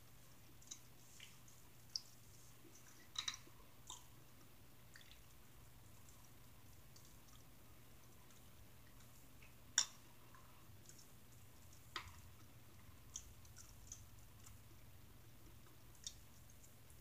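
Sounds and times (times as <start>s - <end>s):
person chewing: 0.5s - 4.2s.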